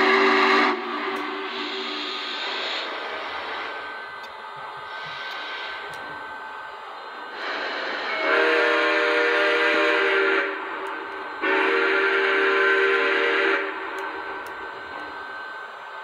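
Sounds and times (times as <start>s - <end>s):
steam locomotive chime whistle: 0.0s - 3.0s, 7.3s - 16.0s
rush of steam: 0.0s - 16.0s.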